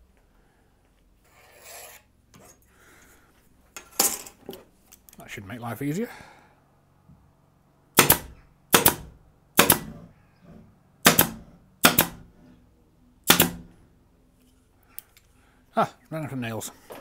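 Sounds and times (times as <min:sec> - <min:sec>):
pin nailer shots into plywood: 0:08.0 - 0:10.0, 0:11.0 - 0:12.2, 0:13.3 - 0:13.7.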